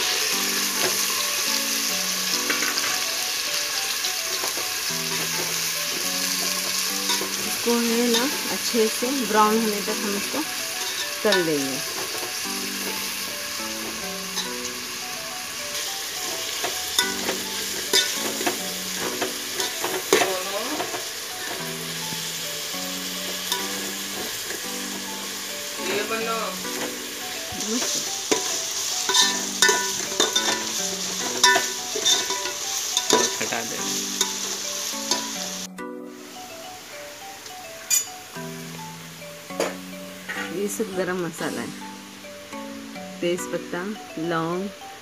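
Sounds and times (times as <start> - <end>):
onions sizzling in hot oil: 0.0 - 45.0
metal spatula scraping pot: 10.6 - 13.1, 16.3 - 21.6, 27.8 - 33.5.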